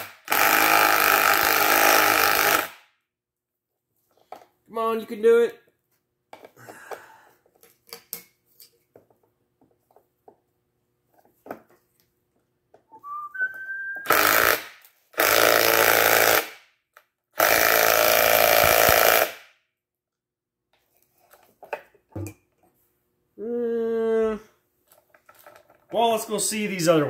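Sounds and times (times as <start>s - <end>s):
power drill driving a fastener: 0.0s - 2.8s, 14.0s - 16.6s, 17.4s - 19.4s.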